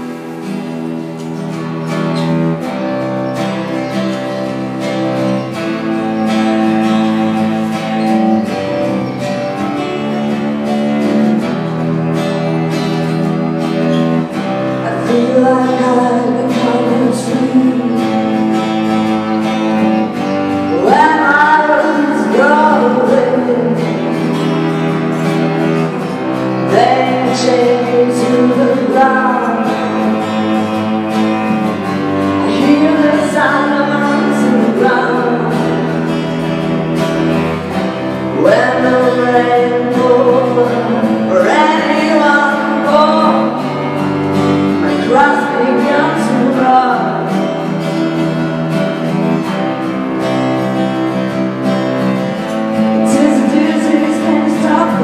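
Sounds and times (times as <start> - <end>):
woman singing folk phrases: 14.3 - 19.0, 20.6 - 25.2, 26.0 - 30.8, 32.2 - 36.7, 38.2 - 47.8, 52.9 - 55.0.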